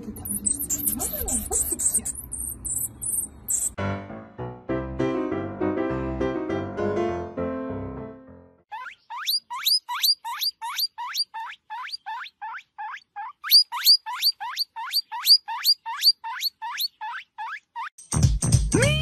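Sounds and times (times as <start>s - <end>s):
guinea pig squeaking: 0.0s - 3.8s, 8.7s - 18.0s.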